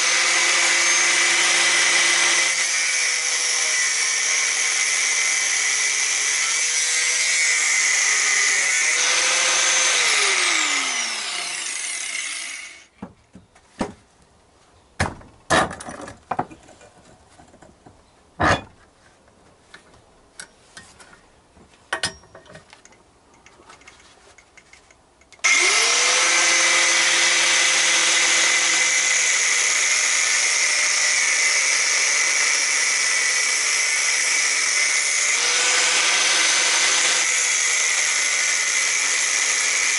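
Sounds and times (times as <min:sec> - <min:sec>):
angle grinder cutting steel: 0:00.0 - 0:12.9, 0:25.4 - 0:39.9
grinder winding down: 0:00.0 - 0:12.9, 0:25.4 - 0:39.9.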